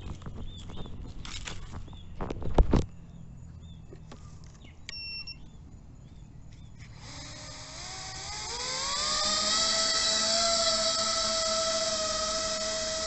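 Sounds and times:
short electronic beep: 4.9s - 5.4s
drone motors whining: 6.6s - 13.0s.

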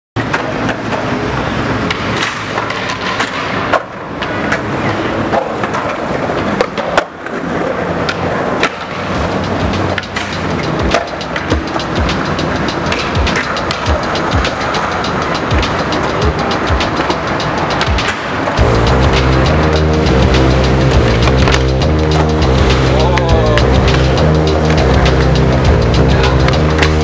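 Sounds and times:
skateboard clacking on ground: 0.2s - 18.6s
skateboard wheels rolling on concrete: 0.2s - 27.0s.

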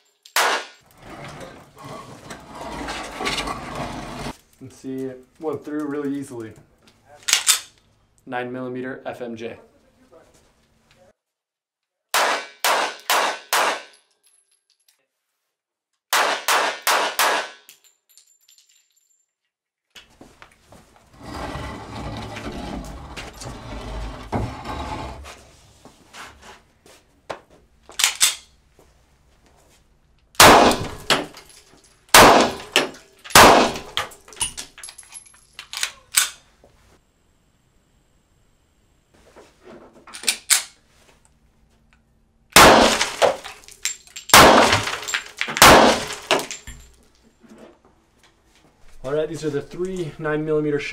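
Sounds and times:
handgun shots: 0.3s - 0.8s, 12.1s - 13.9s, 16.1s - 17.7s, 30.4s - 31.3s, 32.1s - 34.1s, 42.6s - 43.5s, 44.3s - 46.5s
wall panel scraping and bumping: 0.9s - 4.4s, 21.1s - 26.6s.

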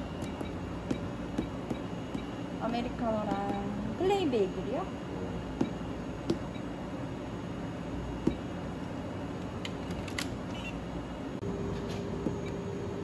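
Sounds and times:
room hum: 0.0s - 13.0s
fingertips tapping a touchscreen: 0.2s - 2.4s, 3.3s - 3.7s, 8.2s - 8.4s.

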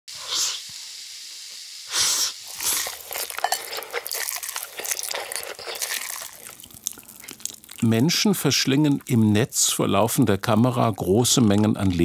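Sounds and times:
slurping noodles: 1.9s - 7.9s
chewing and smacking: 2.5s - 8.0s.

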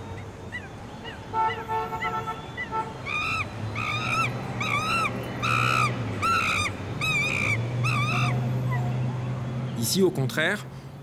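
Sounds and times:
bird cawing: 0.5s - 8.8s.

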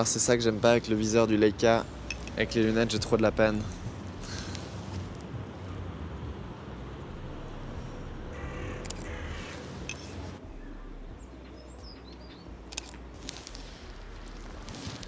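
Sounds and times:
low rumble: 1.9s - 15.0s
birds calling and chirping: 8.3s - 13.3s
sharp clicks: 8.8s - 9.1s, 12.7s - 13.5s.

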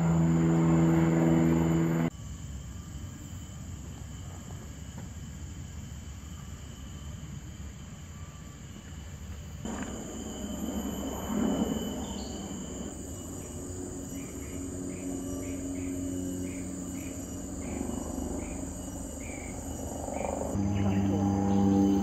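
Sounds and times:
insects trilling: 0.0s - 22.0s
low rumble: 9.7s - 22.0s.

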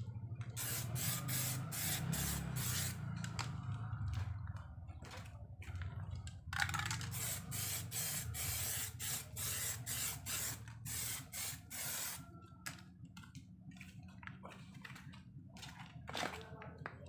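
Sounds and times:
spray can hissing: 0.6s - 3.0s, 6.8s - 12.2s.

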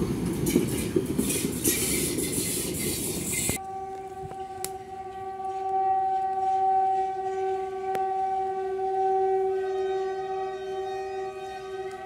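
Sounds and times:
locomotive whistle: 3.4s - 12.0s.

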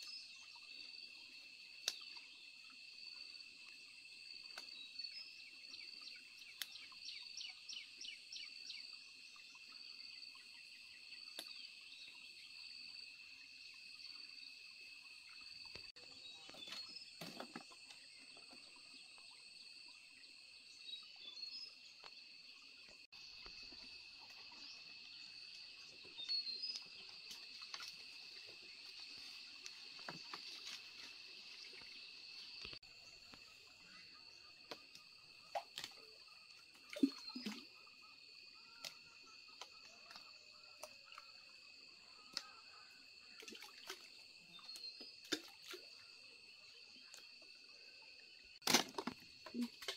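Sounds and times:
branches rustling and clicking: 26.2s - 32.8s.

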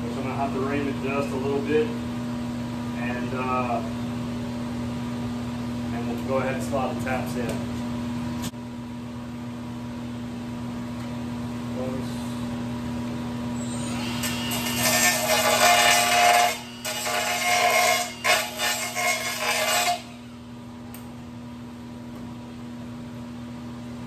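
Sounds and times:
steady low hum: 0.0s - 24.0s
power tool grinding metal: 13.7s - 20.2s.

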